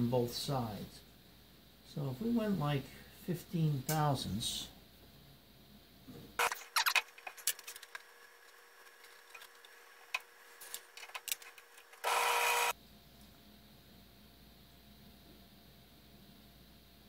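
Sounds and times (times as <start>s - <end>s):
lathe whine: 7.2s - 12.7s.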